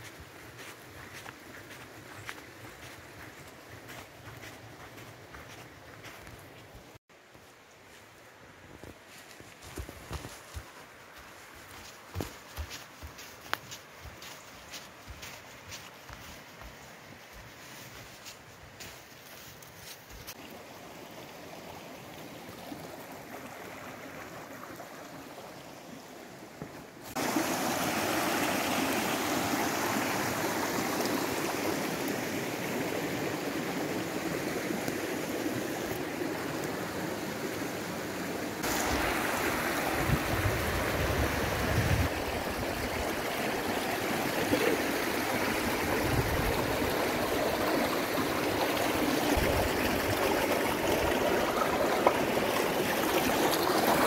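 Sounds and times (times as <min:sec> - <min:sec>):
footsteps on forest path: 0:00.0 - 0:20.4
mountain stream rushing: 0:00.0 - 0:54.0.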